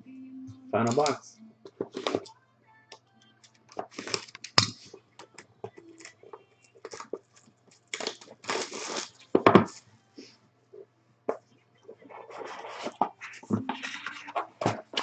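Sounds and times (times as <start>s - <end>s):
plastic wrap crinkling: 3.4s - 9.6s
plastic wrap tearing: 3.6s - 4.8s, 6.8s - 9.4s.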